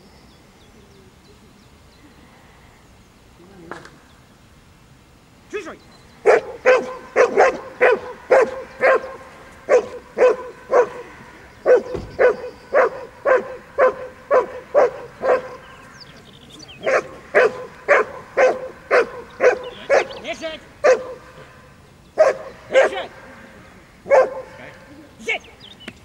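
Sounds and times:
dog barking: 0:06.2 - 0:15.9, 0:16.8 - 0:20.2, 0:20.8 - 0:23.2, 0:24.0 - 0:24.9.

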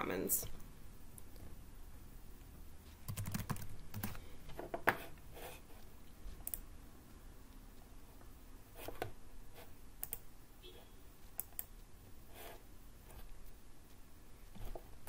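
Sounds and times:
computer keyboard typing: 0:03.0 - 0:04.2.

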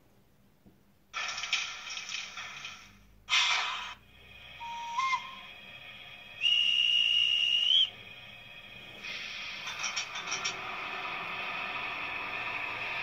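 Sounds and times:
model locomotive speaker hiss: 0:02.7 - 0:13.0
model locomotive whistle: 0:04.6 - 0:05.6, 0:06.4 - 0:08.0.

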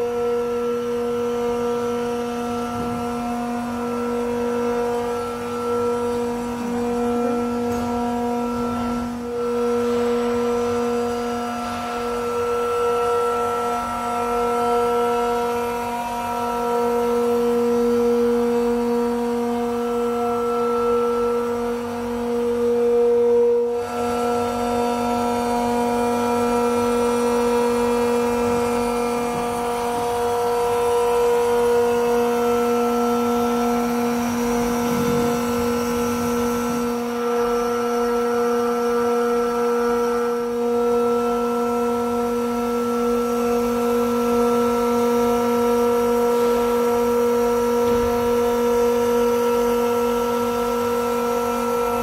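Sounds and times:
screw compressors droning: 0:00.0 - 0:52.0.

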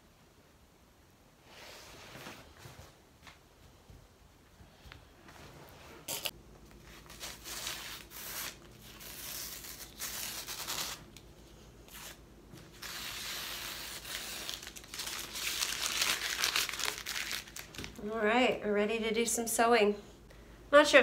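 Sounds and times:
tape being crumpled: 0:06.1 - 0:11.3, 0:11.9 - 0:18.0
tape peeling off canvas: 0:07.0 - 0:11.2.

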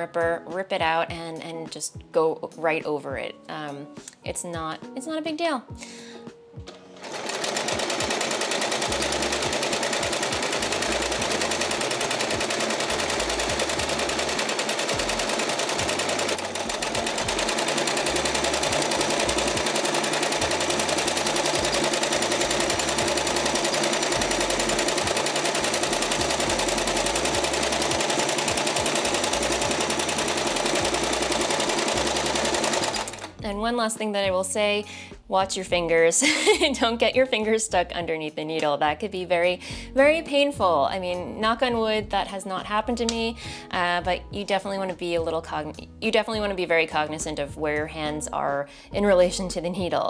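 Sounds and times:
sewing machine stitching: 0:06.7 - 0:33.4.

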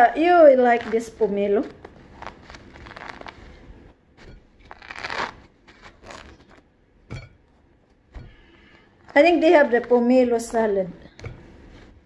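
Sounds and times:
fruit rind tearing and crunching: 0:00.0 - 0:06.7.

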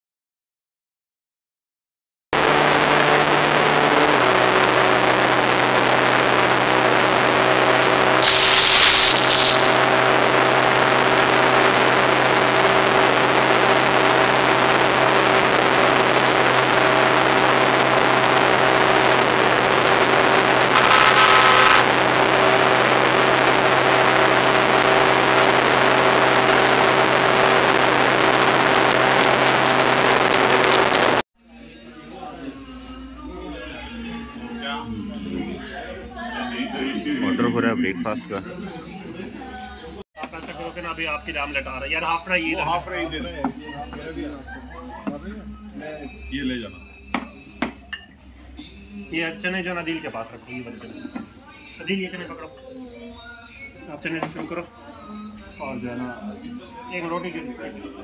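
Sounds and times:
short bursts of noise: 0:07.1 - 0:12.8, 0:23.2 - 0:31.2.

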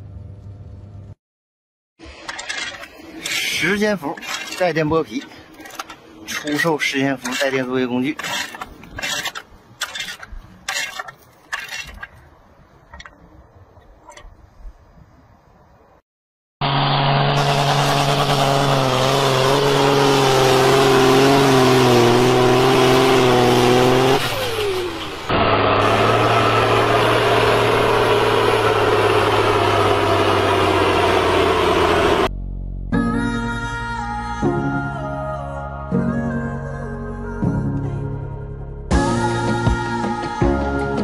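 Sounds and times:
tractor engine: 0:02.0 - 0:13.2, 0:16.6 - 0:32.3.

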